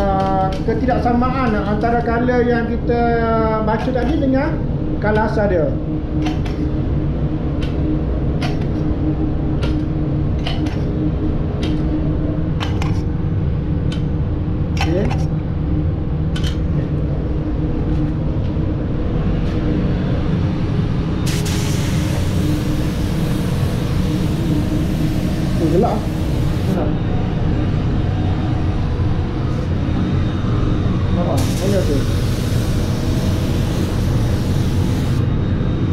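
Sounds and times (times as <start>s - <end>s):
low machine rumble with hum: 0.0s - 35.9s
paint spray gun hissing: 21.3s - 26.8s, 31.4s - 35.2s.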